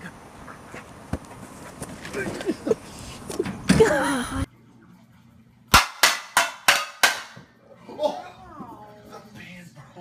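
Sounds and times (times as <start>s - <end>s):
background noise: 0.0s - 10.0s
sharp loud bangs: 5.7s - 7.4s.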